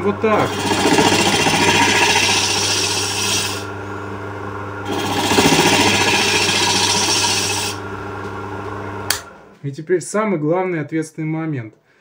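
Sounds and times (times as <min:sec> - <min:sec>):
tool scraping spinning wood: 0:00.0 - 0:03.7, 0:04.8 - 0:07.8
lathe humming: 0:00.0 - 0:09.5.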